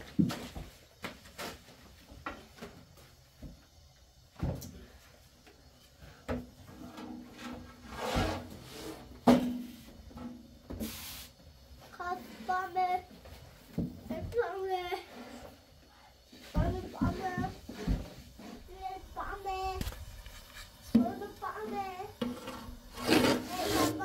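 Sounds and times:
objects knocking and rubbing: 16.5 - 24.0.

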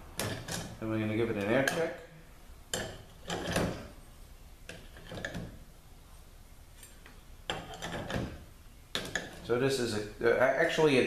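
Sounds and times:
metal parts knocking and clinking: 0.2 - 0.8, 2.7 - 3.9, 7.5 - 9.5.

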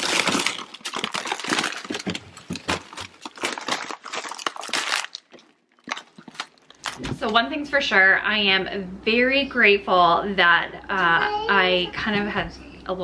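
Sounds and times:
plastic bags crinkling: 0.0 - 7.3.

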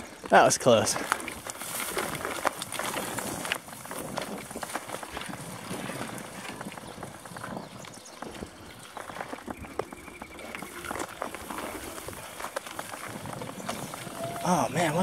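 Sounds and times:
bike rattling: 0.0 - 15.0
tyres crunching on dirt: 0.0 - 15.0
grass brushing against bike: 0.8 - 7.6, 8.2 - 15.0.

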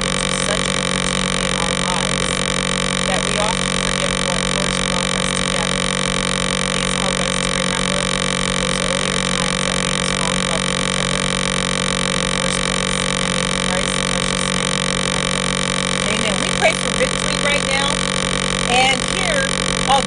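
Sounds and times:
faint voice: 0.0 - 5.9, 16.0 - 18.0
electrical buzzing drone: 0.0 - 20.0.

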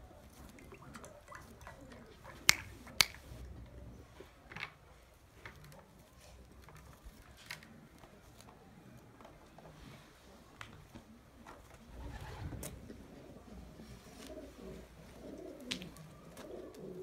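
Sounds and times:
pigeon pecking on concrete: 0.1 - 17.0.

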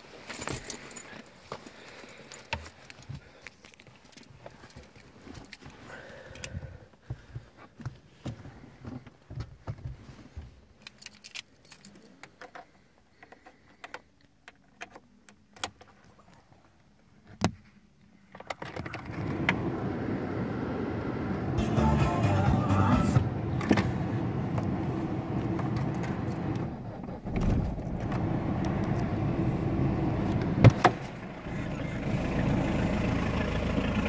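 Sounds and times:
keys jangling: 0.2 - 1.5, 2.1 - 6.5, 10.8 - 12.7
diesel engine starting and running: 18.8 - 34.0.

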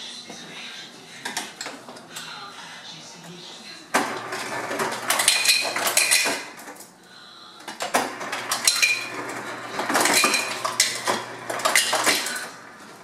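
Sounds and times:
ice cubes clattering into glass: 5.0 - 6.5, 8.5 - 9.2, 9.8 - 12.5.

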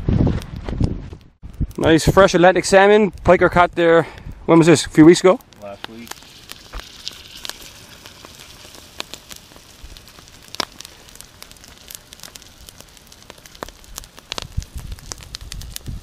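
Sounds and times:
campfire crackling and popping: 1.4 - 16.0
fish sizzling in a skillet: 5.6 - 16.0.

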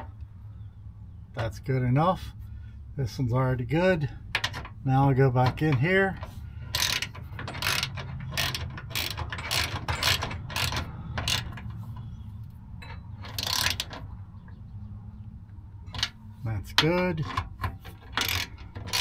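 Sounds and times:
ratchet wrench clicking: 6.6 - 12.1, 12.8 - 14.0, 17.9 - 19.0.

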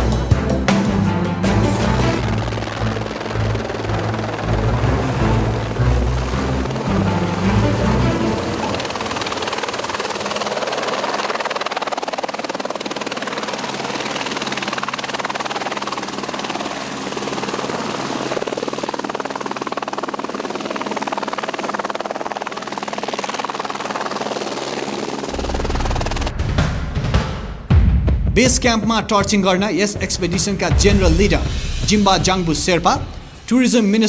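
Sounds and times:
helicopter rotor and engine: 0.0 - 26.3.

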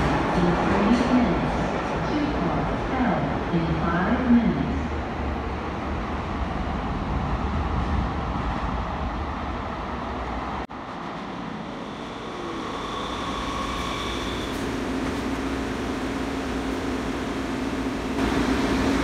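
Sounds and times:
light-rail train rumble: 0.0 - 19.0
train high whine: 10.7 - 19.0.

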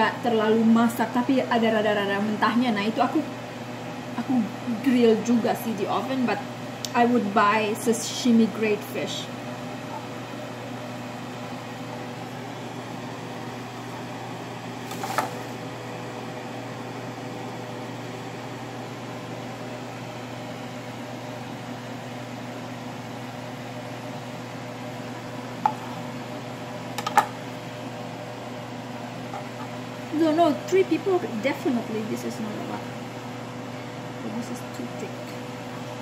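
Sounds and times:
mechanical hum of appliance: 0.0 - 36.0.

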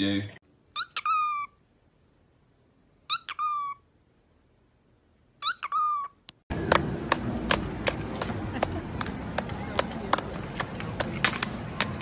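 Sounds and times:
outdoor noise: 0.0 - 12.0
cockatiel calling: 0.8 - 1.6, 3.1 - 3.8, 5.4 - 6.2
sharp claps: 6.5 - 12.0.

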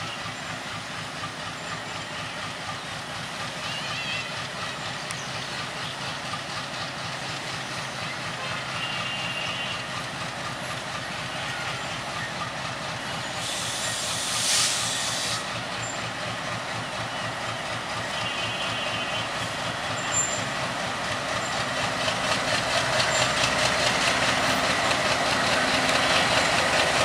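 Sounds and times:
locomotive engine droning: 0.0 - 27.0
air hiss release: 13.4 - 15.5.

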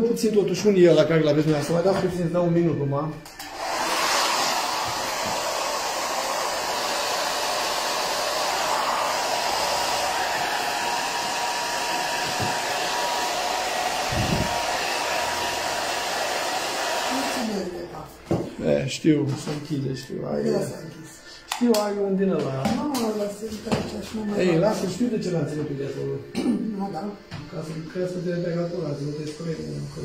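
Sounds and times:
hot-air dryer blowing with motor whine: 3.4 - 17.8.

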